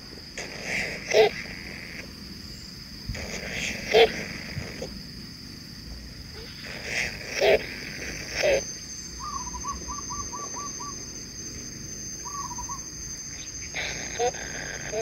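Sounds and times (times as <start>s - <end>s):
steady high whine: 0.0s - 15.0s
nestlings trilling: 6.3s - 15.0s
nestlings squawking: 12.2s - 12.8s.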